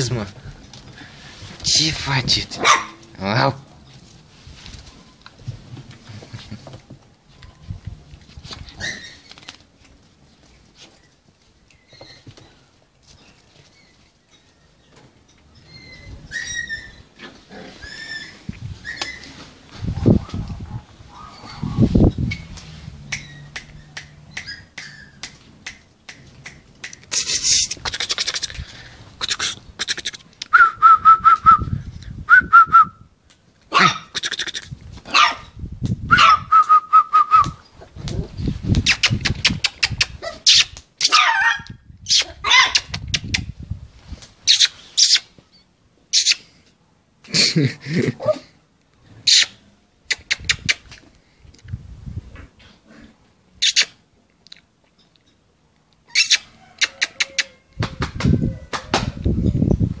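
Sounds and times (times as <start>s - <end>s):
puppy yelping and whining: 8.8s - 9.5s, 15.6s - 19.5s, 21.1s - 22.5s, 23.1s - 25.2s, 40.1s - 42.9s, 56.1s - 57.6s.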